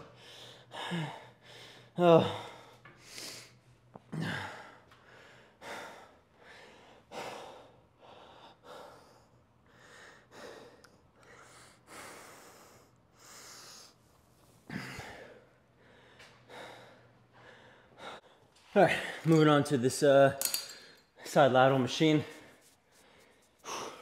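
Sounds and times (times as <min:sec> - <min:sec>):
man breathing hard: 0:00.0 - 0:14.0, 0:14.7 - 0:19.3, 0:22.2 - 0:24.0
man gasping: 0:00.1 - 0:08.8.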